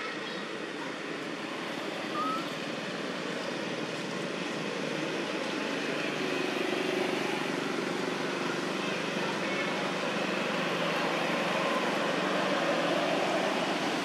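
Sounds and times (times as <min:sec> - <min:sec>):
low rumble of traffic: 0:00.0 - 0:14.0
short rising chirp: 0:02.1 - 0:02.5.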